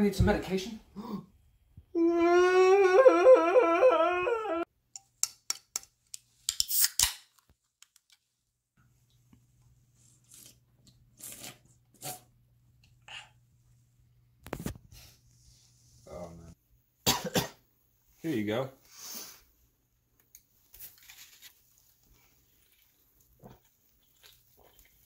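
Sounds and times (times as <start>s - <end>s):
soda can cracked open: 6.5s - 7.4s.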